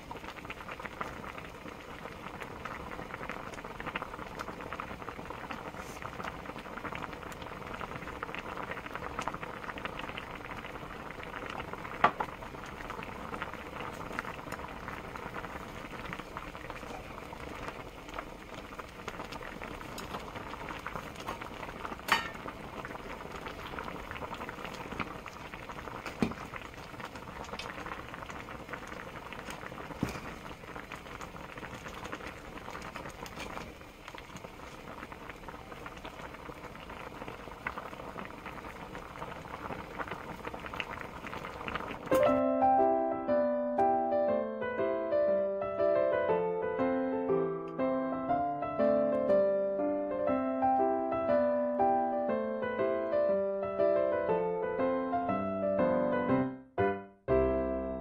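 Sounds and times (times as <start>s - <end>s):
soup bubbling at a boil: 0.0s - 42.2s.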